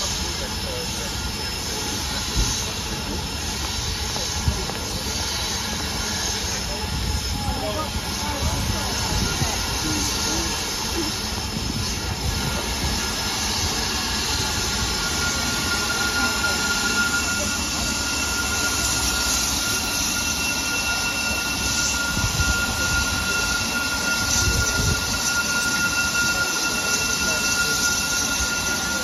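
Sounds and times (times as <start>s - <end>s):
steam hissing from locomotive: 0.0s - 29.0s
thin high-pitched tone: 7.4s - 29.0s.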